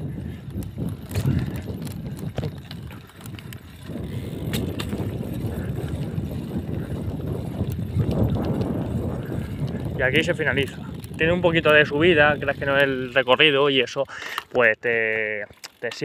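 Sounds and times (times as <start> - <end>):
bicycle clicks and rattles: 0.0 - 16.0
bicycle tyre and wind rumble: 0.0 - 16.0.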